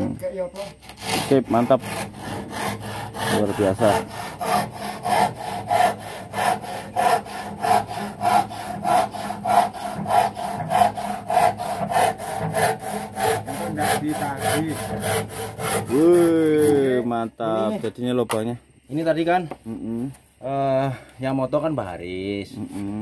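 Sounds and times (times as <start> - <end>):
handsaw cutting wood: 0.0 - 17.7.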